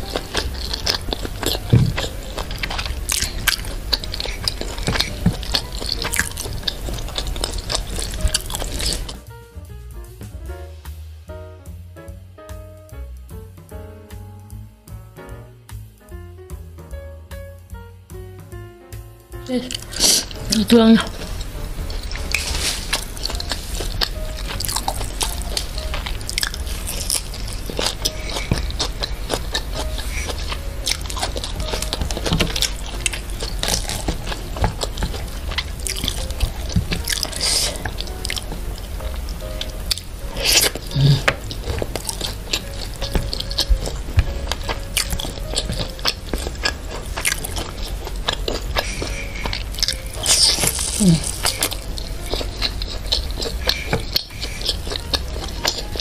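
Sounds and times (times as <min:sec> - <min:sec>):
chewing and crunching crisp food: 0:00.0 - 0:09.2, 0:19.4 - 0:56.0
steady low hum: 0:00.0 - 0:13.8, 0:19.0 - 0:56.0
wet mouth clicks: 0:48.6 - 0:55.9.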